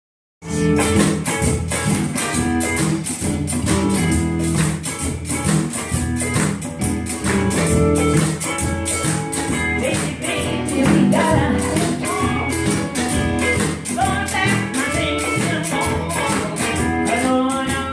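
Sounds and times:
live blues band playing: 0.4s - 17.9s
person singing: 9.7s - 13.0s, 13.8s - 17.9s.

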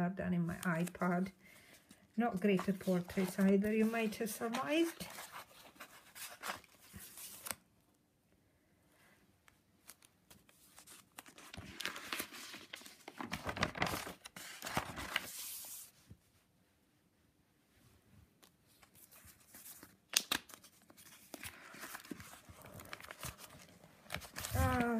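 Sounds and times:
paper pages rustling: 0.6s - 7.6s, 9.8s - 16.1s, 18.4s - 24.9s.

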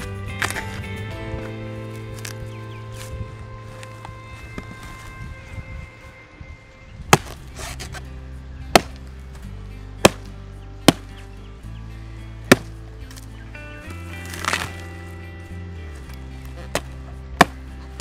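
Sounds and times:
machete chopping palm stem: 0.0s - 0.8s, 7.1s - 8.0s, 8.7s - 9.1s, 10.0s - 11.2s, 12.4s - 13.3s, 14.2s - 14.9s, 16.5s - 17.8s
background music: 0.0s - 18.0s
rasping scrape: 7.2s - 8.1s.

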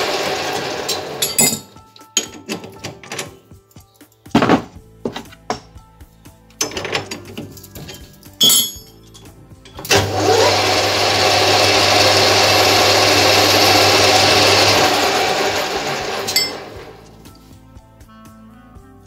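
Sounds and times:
lathe motor whine and hum: 0.0s - 1.2s, 9.8s - 17.1s.

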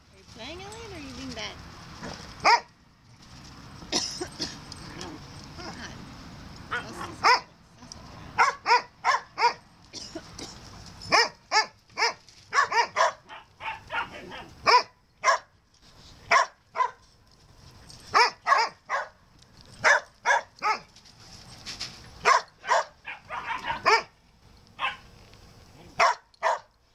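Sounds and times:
dogs barking: 2.4s - 2.7s, 6.7s - 7.5s, 8.3s - 9.6s, 11.1s - 15.5s, 16.3s - 17.0s, 18.1s - 19.2s, 19.8s - 20.9s, 22.2s - 24.2s, 24.8s - 25.1s, 26.0s - 26.8s.

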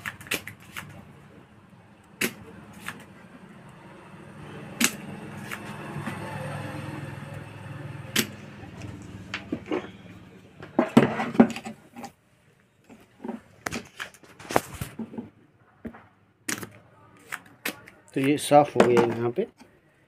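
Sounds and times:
low hum: 0.0s - 11.6s.

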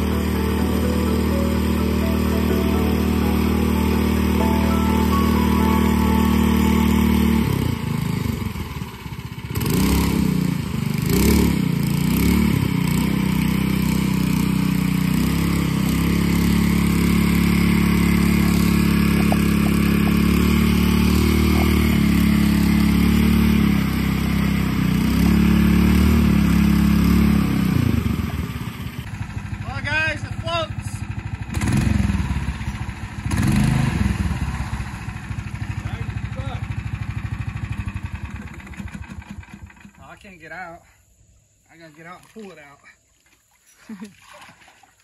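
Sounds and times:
go-kart engine revving: 0.0s - 40.0s
tires churning through water: 6.7s - 29.1s, 41.7s - 45.0s.

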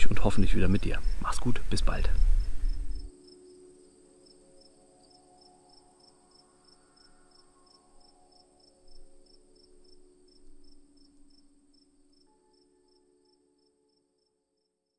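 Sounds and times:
faint low bumps: 0.0s - 3.1s
soft low tones: 0.0s - 3.2s
cricket chirping: 0.0s - 14.0s
high insect trill: 0.0s - 14.0s.

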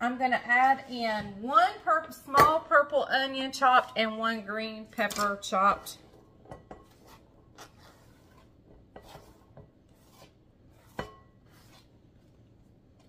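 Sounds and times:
scraping on plastic cutting board: 6.8s - 12.0s.

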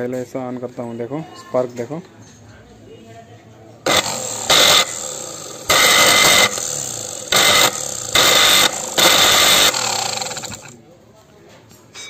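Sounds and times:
mixer grinder motor running: 3.9s - 10.8s.

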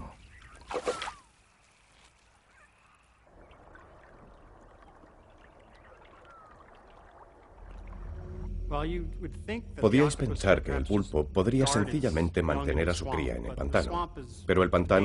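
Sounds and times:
water trickling and splashing: 0.1s - 8.5s
faint whistling animal calls: 2.4s - 3.2s, 5.7s - 6.7s.

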